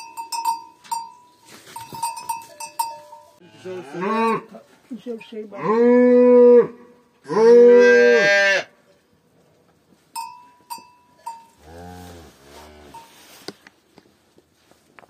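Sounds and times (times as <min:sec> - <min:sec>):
bell-like rings: 0:00.0 - 0:03.4
calf mooing: 0:03.4 - 0:04.6, 0:05.5 - 0:08.8, 0:11.6 - 0:13.1.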